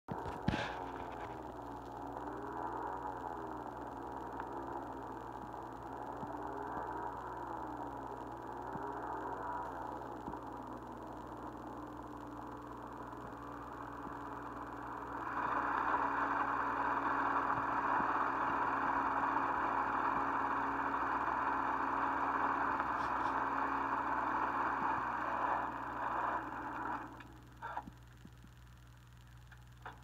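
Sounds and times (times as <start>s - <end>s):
skis sliding over snow: 0.2s - 1.5s, 15.1s - 26.8s.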